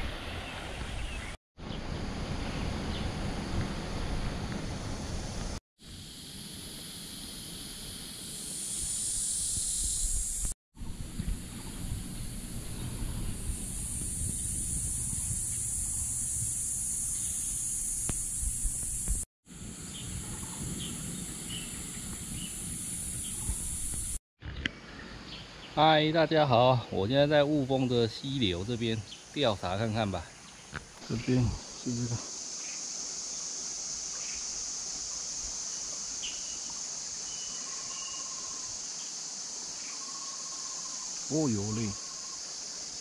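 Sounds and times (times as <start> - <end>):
high-pitched insect drone: 4.6 - 24.2, 31.1 - 43.0
small bird chirping: 17.0 - 19.2
faint bird chirps: 36.2 - 38.8, 39.8 - 42.5.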